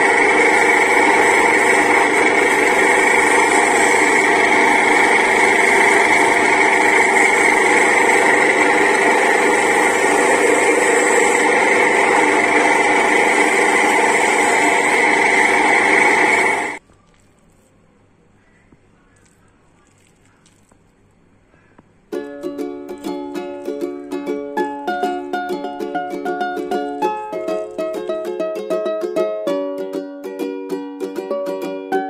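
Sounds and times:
electric grater motor whine: 0.0s - 16.8s
cassava being shredded: 16.8s - 17.8s, 19.2s - 21.2s, 25.0s - 28.4s.

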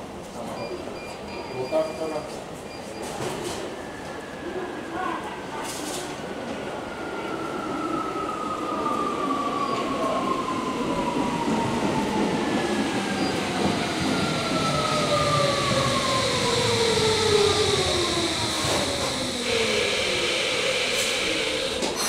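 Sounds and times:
wheels rumbling on rail: 9.6s - 22.0s
train motor whine falling in pitch: 14.8s - 22.0s.

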